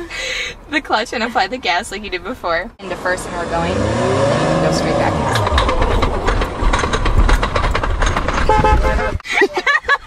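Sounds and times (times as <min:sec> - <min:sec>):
tyre and road noise: 0:00.7 - 0:09.3
car engine accelerating: 0:02.8 - 0:09.0
steady tone: 0:02.8 - 0:09.0
woman laughing: 0:09.2 - 0:10.0.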